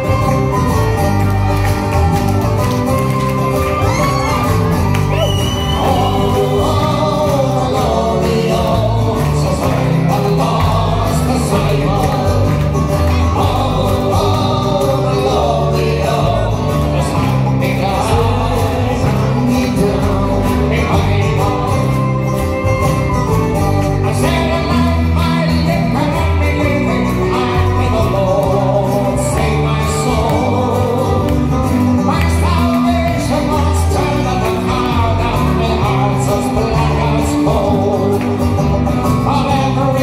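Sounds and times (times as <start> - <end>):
acoustic guitar: 0.0 - 40.0
banjo: 0.0 - 40.0
electric bass: 0.0 - 40.0
tin whistle: 3.1 - 7.0.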